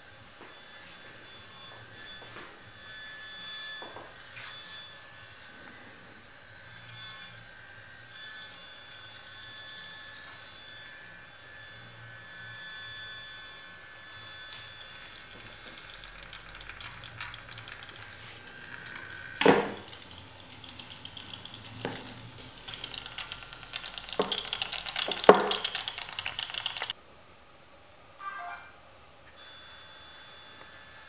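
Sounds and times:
bug detector crackling clicks: 15.3 - 27.0
handling knocks: 17.7 - 22.9.

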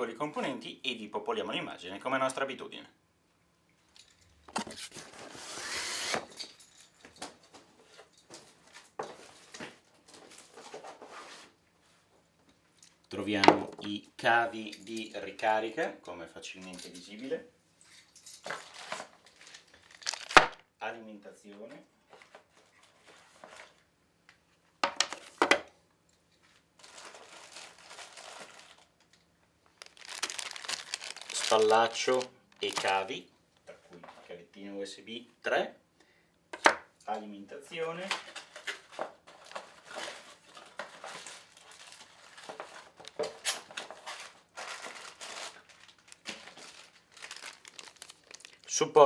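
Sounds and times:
plastic bag crinkling: 18.4 - 20.6, 26.8 - 33.2, 38.2 - 48.8
cardboard rustling: 18.5 - 20.6, 29.8 - 33.1, 38.2 - 48.7.

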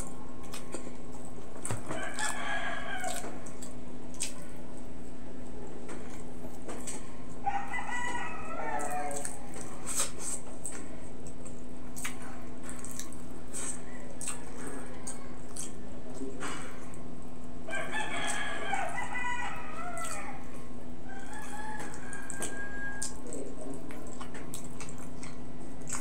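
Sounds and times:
close-up chewing and lip-smacking: 0.0 - 26.0
steady low hum: 0.0 - 26.0
rooster crowing: 1.9 - 3.4, 7.4 - 9.4, 17.6 - 23.2.

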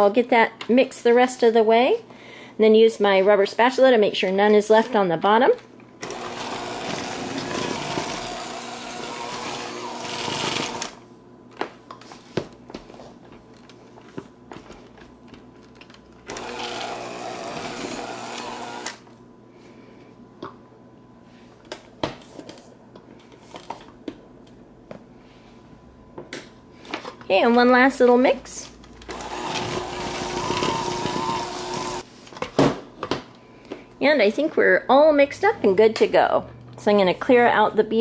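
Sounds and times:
electric hand mixer running: 6.0 - 11.0, 16.3 - 19.0, 29.1 - 32.0.

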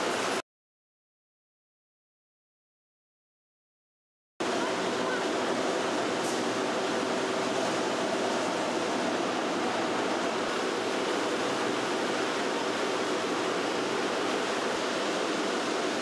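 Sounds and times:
factory machinery rushing din: 0.0 - 0.4, 4.4 - 16.0.

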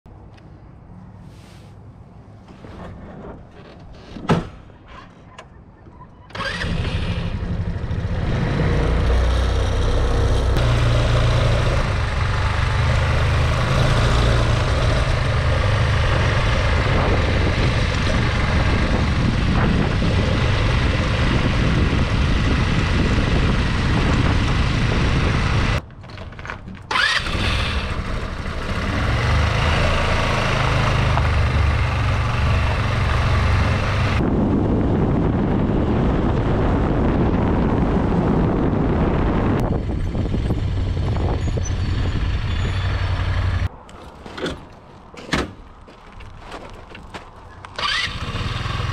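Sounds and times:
scooter engine running: 6.4 - 25.8, 26.9 - 34.2, 47.8 - 48.9.

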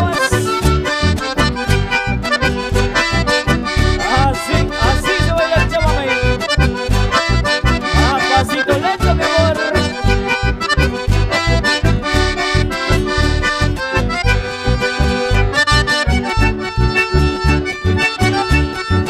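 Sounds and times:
accordion melody: 0.0 - 19.0
steady bass beat: 0.0 - 19.0.

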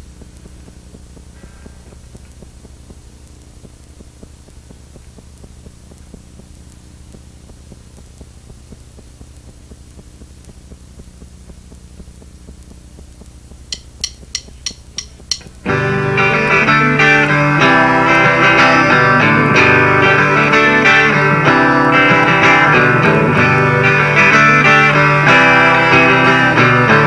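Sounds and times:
guitar amplifier hum: 0.0 - 27.0
drumstick count-in clicks: 0.1 - 15.9.

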